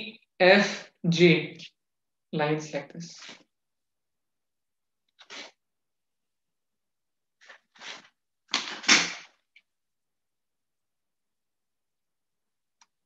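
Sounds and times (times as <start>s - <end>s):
plastic rustling and sliding on paper: 7.4s - 9.4s.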